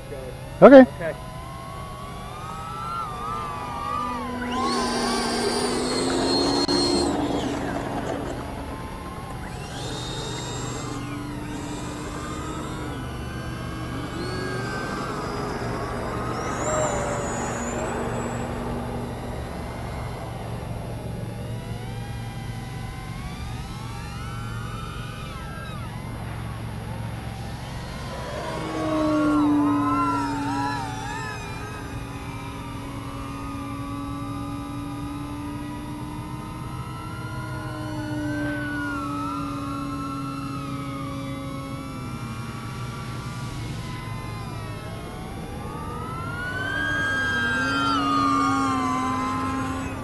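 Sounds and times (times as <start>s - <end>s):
quadcopter motors whining: 0.0s - 50.0s.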